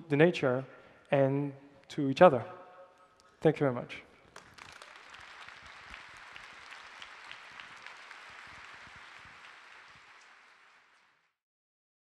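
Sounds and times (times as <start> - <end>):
audience applauding: 4.3 - 11.4.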